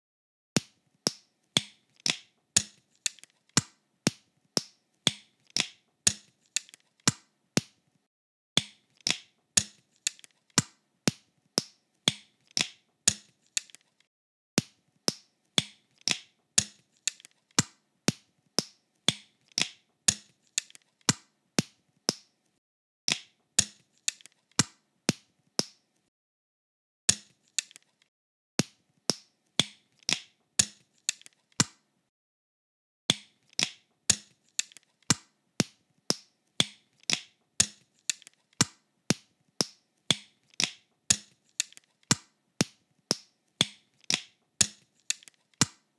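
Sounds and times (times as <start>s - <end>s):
plastic bricks clicking together: 1.1s - 3.7s, 4.6s - 7.2s, 8.6s - 10.7s, 11.6s - 14.1s, 15.1s - 17.7s, 18.6s - 21.2s, 23.1s - 24.7s, 27.1s - 28.1s, 29.6s - 31.7s, 33.1s - 35.2s, 36.1s - 45.8s.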